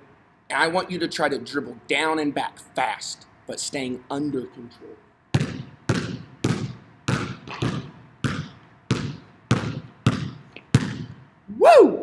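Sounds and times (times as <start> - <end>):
basketball bouncing on gym floor: 5.3 - 11.3.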